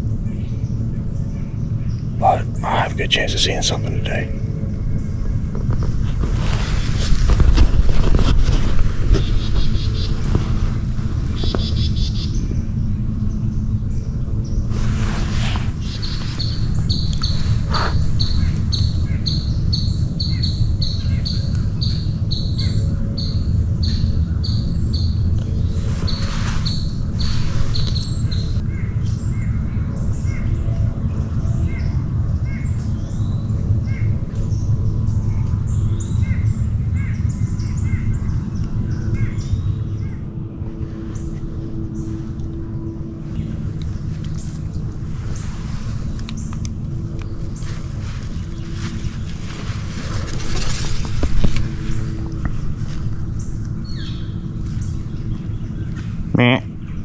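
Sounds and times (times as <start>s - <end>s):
faint hum: 0.0s - 57.0s
low rumble: 0.0s - 57.0s
birds calling short notes: 15.5s - 25.2s
rustling with soft knock: 47.6s - 53.4s.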